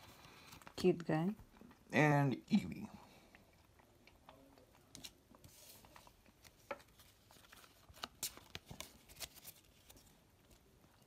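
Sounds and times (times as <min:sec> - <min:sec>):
cards and foil packs crinkling: 0:04.3 - 0:11.0.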